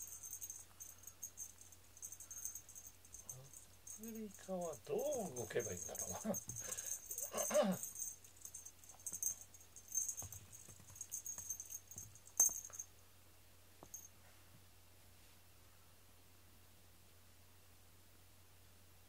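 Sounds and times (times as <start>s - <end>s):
cat toy rattling and rustling: 0.0s - 12.8s.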